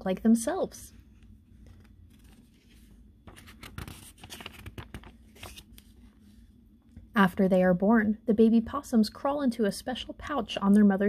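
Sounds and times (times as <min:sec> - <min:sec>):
page turning paper rustling: 0:01.2 - 0:06.2.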